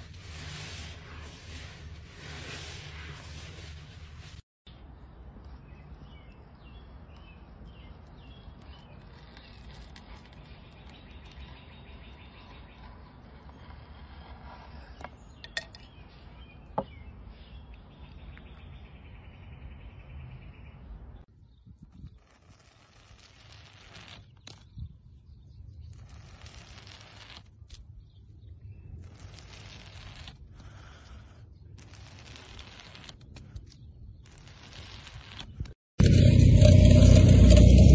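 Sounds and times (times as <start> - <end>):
outdoor background noise: 0.0 - 37.9
small birds chirping: 4.7 - 22.7.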